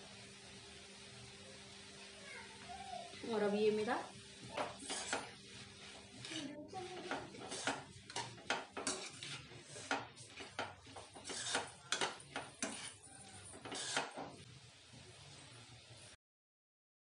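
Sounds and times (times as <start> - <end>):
spoon scraping frying pan: 4.4 - 14.5.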